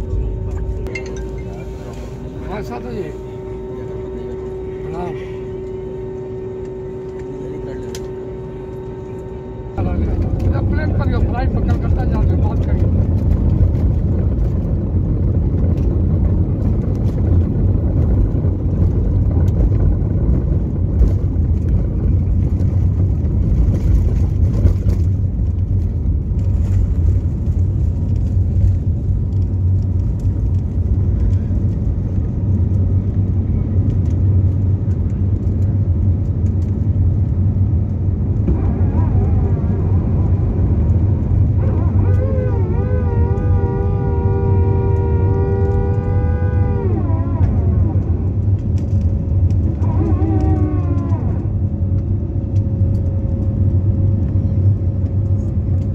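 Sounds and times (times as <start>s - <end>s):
wavering pitched tone: 0.0s - 11.7s
jet engine rumble in cabin: 0.0s - 55.9s.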